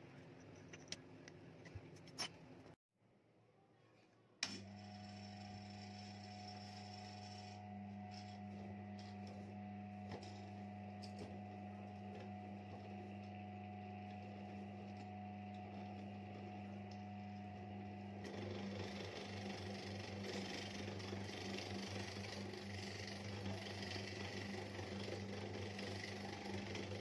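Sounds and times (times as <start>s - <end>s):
electric motor running: 4.6s - 9.1s, 17.8s - 27.0s.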